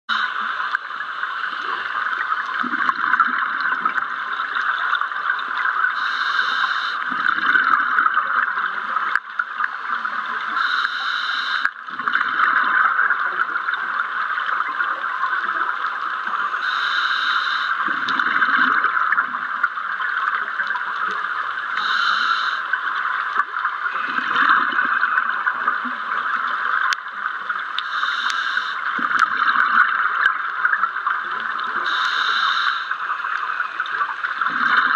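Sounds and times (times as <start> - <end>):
exhaled bubbles bursting: 2.4 - 5.0, 7.0 - 9.3, 11.8 - 14.1, 17.8 - 19.7, 23.9 - 27.1, 28.9 - 32.0, 34.2 - 34.9
steady hiss: 6.0 - 7.1, 10.5 - 11.7, 16.5 - 17.9, 21.7 - 22.7, 27.8 - 29.0, 31.8 - 33.3
regulator breathing: 21.8 - 22.7, 27.8 - 28.8, 31.9 - 33.0.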